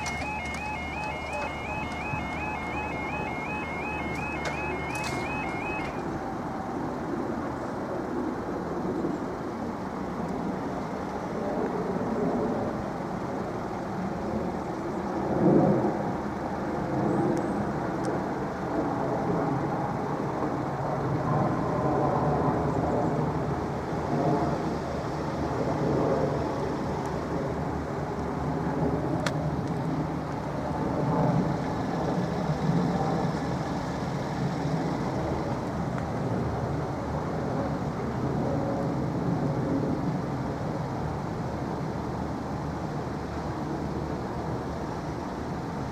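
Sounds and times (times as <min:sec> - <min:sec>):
road traffic rumble: 0:00.0 - 0:11.8, 0:22.7 - 0:45.9.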